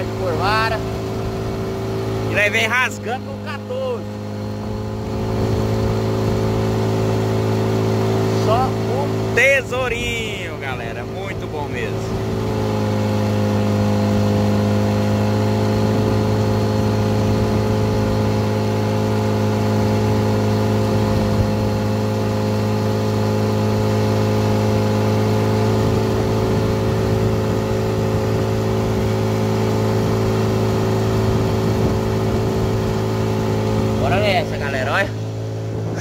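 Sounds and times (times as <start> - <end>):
boat motor running: 0.0 - 36.0.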